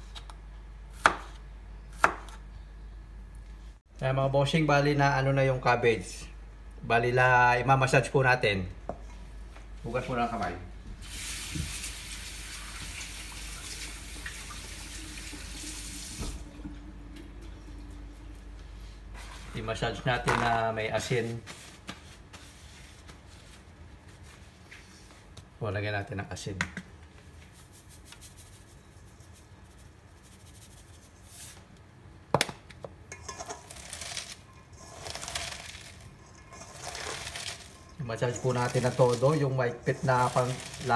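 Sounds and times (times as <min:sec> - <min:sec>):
faucet running water: 0:11.0 - 0:18.1, 0:33.8 - 0:40.9
hands rustling and crunching cabbage: 0:33.3 - 0:40.9.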